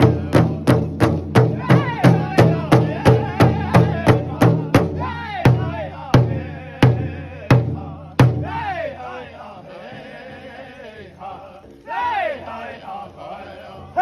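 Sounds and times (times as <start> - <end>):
large hide drum beats: 0.0 - 9.0
men singing chant-like lines: 0.0 - 14.0.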